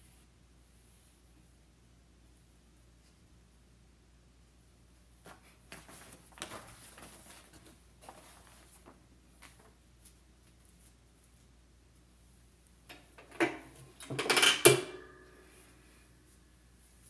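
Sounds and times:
paper rustling and crinkling: 5.2 - 11.0.

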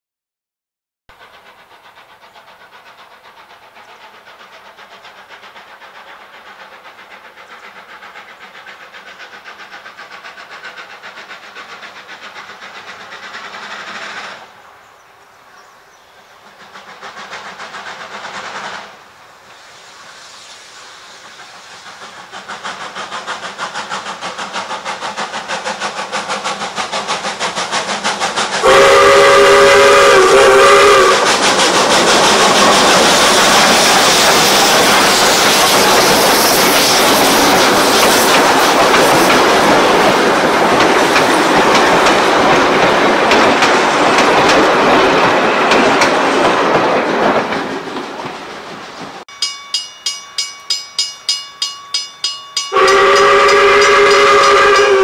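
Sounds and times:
steam locomotive exhaust beats: 1.1 - 55.0
steam locomotive whistle: 28.6 - 31.4, 52.6 - 55.0.

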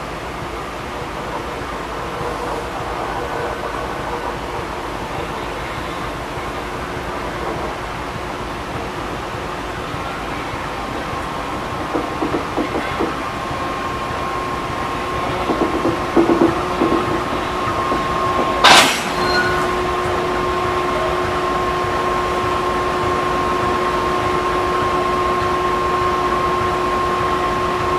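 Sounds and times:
diesel locomotive engine hum: 0.0 - 27.9
metal clanks: 15.5 - 19.8.

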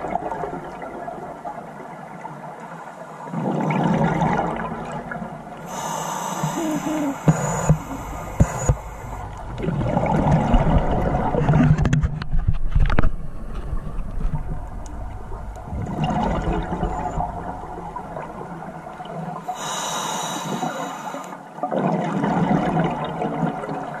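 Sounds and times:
hissing inhale through regulator: 5.6 - 9.4, 19.5 - 21.4
bubbling regulator exhalations: 5.6 - 11.7.

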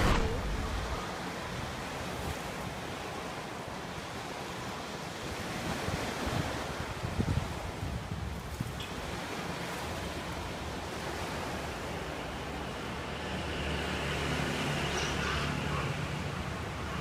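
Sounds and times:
low hum: 0.0 - 1.3
outdoor rushing noise: 0.0 - 1.8.

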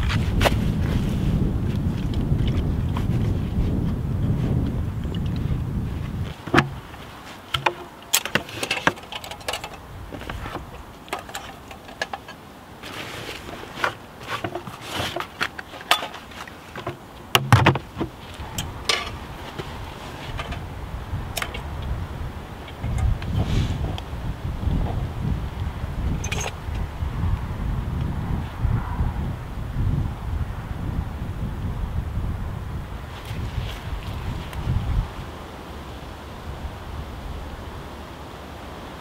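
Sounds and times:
rustling: 0.0 - 24.1, 33.0 - 35.3
wind rumble on microphone: 0.0 - 39.0
gear clicking and clinking: 7.5 - 10.4, 26.2 - 26.6.

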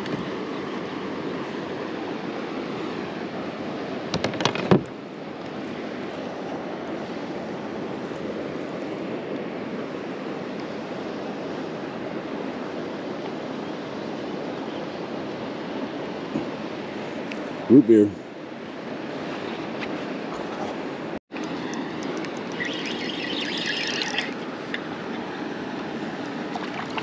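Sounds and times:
water noise: 0.0 - 27.0
sharp knocks and clatters: 4.1 - 4.9.

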